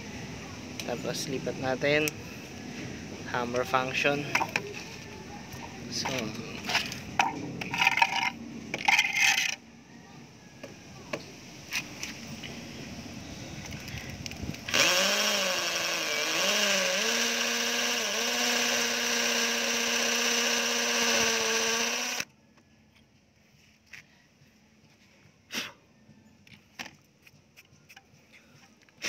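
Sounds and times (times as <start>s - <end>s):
hammer drill boring into concrete: 14.7s - 22.3s.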